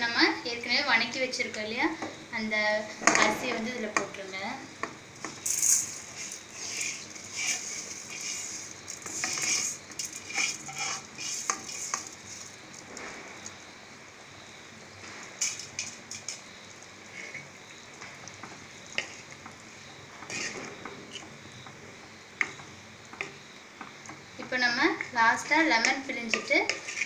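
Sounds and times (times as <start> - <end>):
pot sizzling: 2.4 - 27.0
spoon scraping pan: 5.2 - 12.6, 15.4 - 17.6, 18.3 - 21.4, 22.4 - 27.0.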